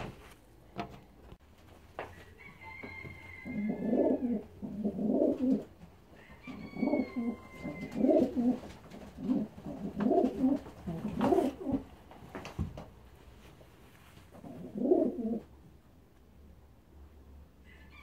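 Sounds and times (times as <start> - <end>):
pigeons cooing: 3.4 - 11.9, 14.4 - 15.5.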